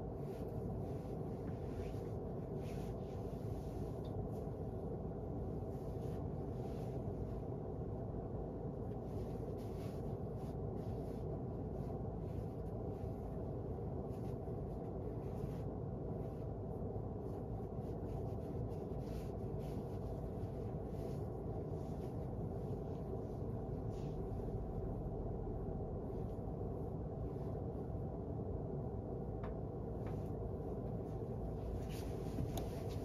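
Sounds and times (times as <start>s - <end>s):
low room hum: 0.0s - 33.0s
faint short rustles: 8.7s - 25.1s, 29.9s - 33.0s.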